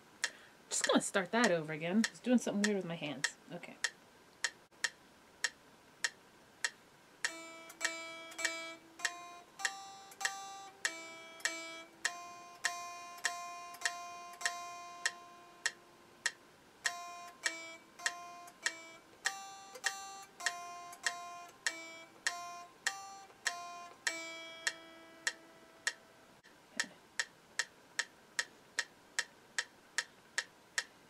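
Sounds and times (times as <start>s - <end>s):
metronome clicking: 0.2s - 30.9s
electric guitar plucked notes: 7.3s - 16.0s, 16.9s - 26.3s.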